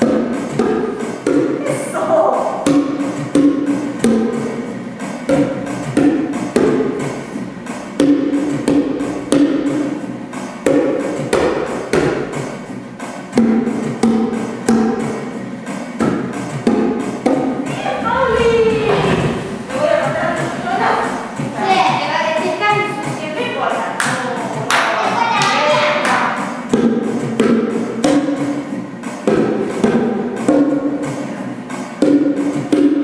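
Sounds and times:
body percussion claps and pats: 0:00.0 - 0:01.6, 0:08.0 - 0:10.0, 0:10.6 - 0:12.5, 0:13.3 - 0:15.3, 0:23.9 - 0:31.2, 0:32.0 - 0:33.0.

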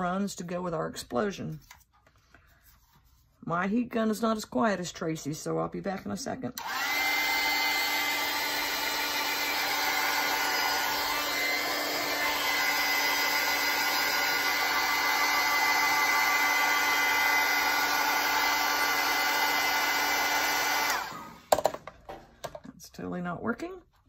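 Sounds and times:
heat gun blowing air: 0:06.6 - 0:21.5.

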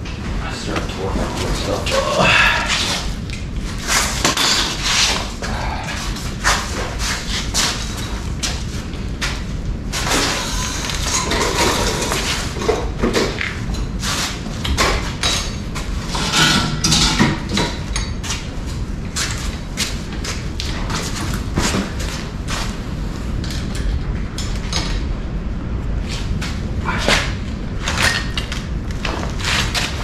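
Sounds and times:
hand tools clanking on metal: 0:15.2 - 0:18.2.

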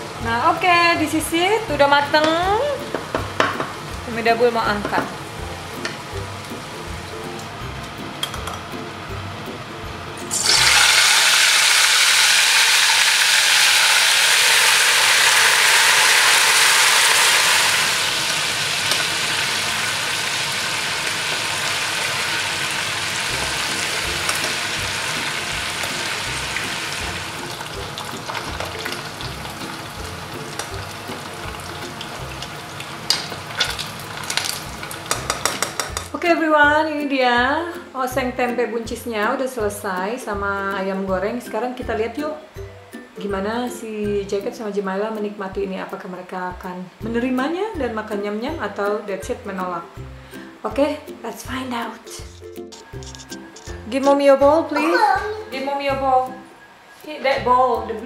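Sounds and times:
chicken sizzling in hot oil: 0:10.2 - 0:36.1.

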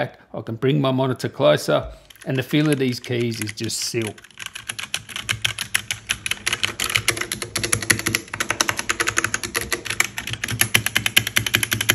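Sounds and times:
fast mechanical keyboard typing: 0:02.0 - 0:11.9.

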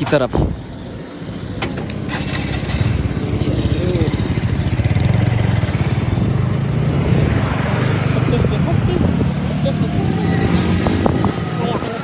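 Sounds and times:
motorcycle engine rumble: 0:00.0 - 0:12.0.

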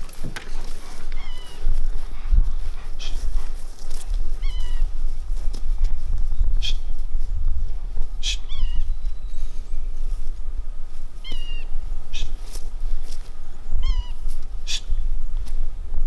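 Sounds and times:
wind on microphone: 0:00.0 - 0:16.0.

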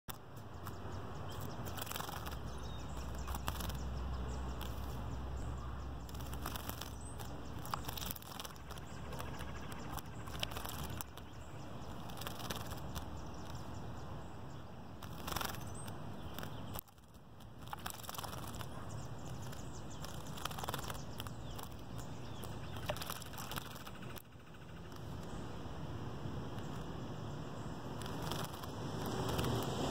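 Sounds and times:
wing flutters: 0:00.1 - 0:13.8, 0:15.0 - 0:25.4, 0:27.6 - 0:29.9.

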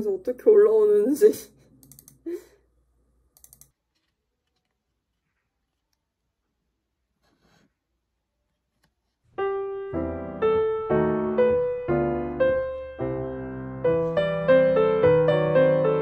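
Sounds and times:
slow gentle piano music: 0:09.3 - 0:16.0.

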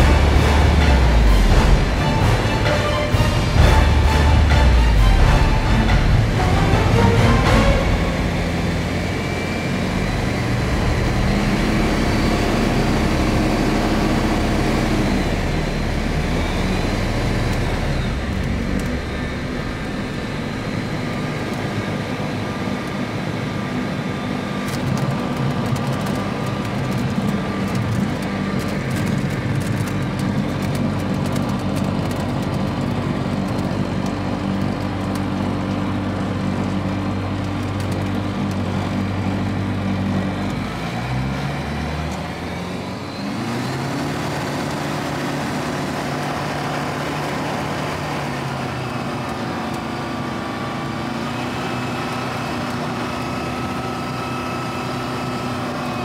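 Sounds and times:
propeller aircraft engine: 0:00.0 - 0:56.0
wheels clicking on grass airstrip: 0:24.6 - 0:41.1.

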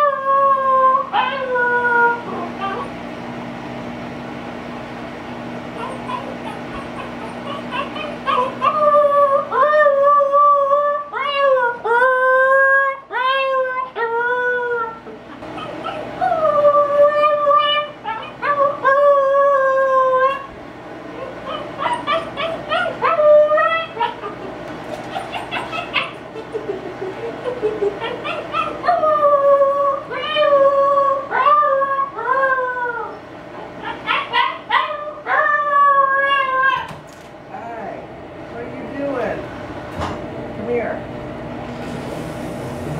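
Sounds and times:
puppy howling: 0:00.0 - 0:03.0, 0:05.8 - 0:20.5, 0:21.1 - 0:37.0
puppy yipping: 0:05.8 - 0:09.8, 0:13.1 - 0:19.1, 0:21.1 - 0:26.6, 0:27.4 - 0:29.3, 0:31.3 - 0:37.0.

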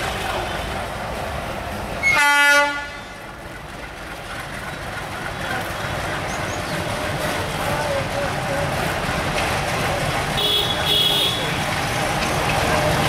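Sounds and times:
train rumbling past: 0:00.0 - 0:13.0
locomotive horn blast: 0:02.0 - 0:03.2, 0:10.4 - 0:11.6.

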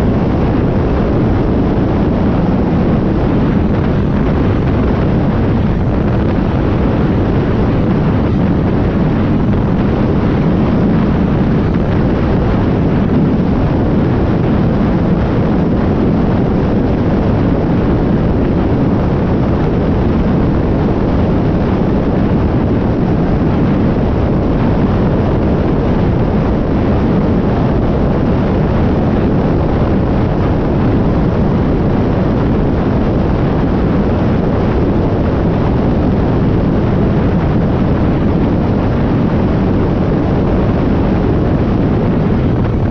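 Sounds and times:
wind on microphone: 0:00.0 - 0:42.9
vehicle engine and tyre noise: 0:37.5 - 0:42.9.

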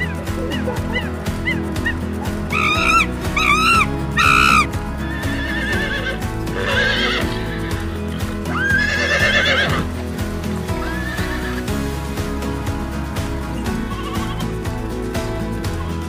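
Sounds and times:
horses whinnying: 0:00.0 - 0:09.9, 0:10.8 - 0:11.7, 0:13.7 - 0:14.6
background music: 0:00.0 - 0:16.0.

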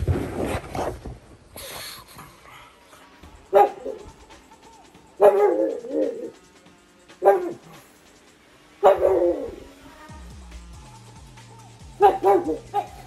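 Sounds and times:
dog barking: 0:03.5 - 0:04.2, 0:05.2 - 0:06.3, 0:07.2 - 0:07.8, 0:08.8 - 0:09.7, 0:12.0 - 0:13.0.

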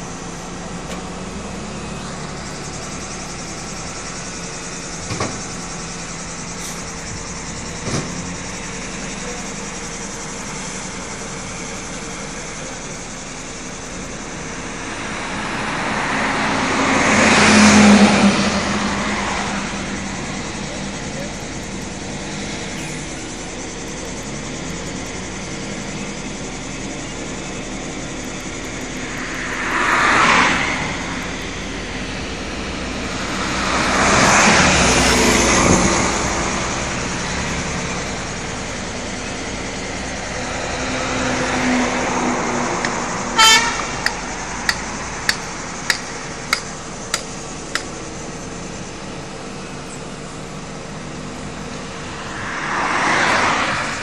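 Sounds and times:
road traffic passing: 0:00.0 - 0:54.0
truck engine running: 0:00.0 - 0:54.0
short horn toot: 0:43.4 - 0:44.0
sharp knocks: 0:44.0 - 0:47.9.

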